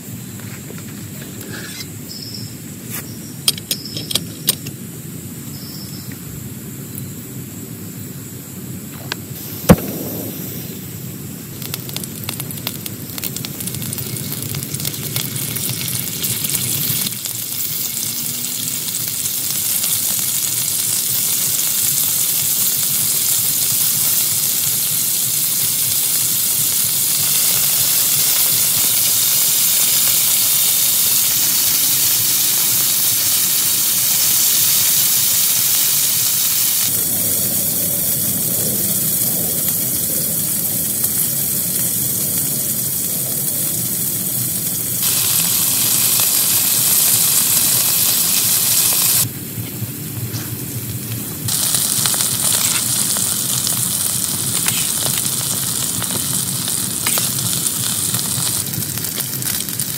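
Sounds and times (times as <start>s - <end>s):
sharp crack: 8.9s - 18.0s, 51.5s - 59.9s
low rumble: 9.3s - 12.5s
heavy rain on a tent: 13.5s - 49.3s, 51.0s - 59.9s.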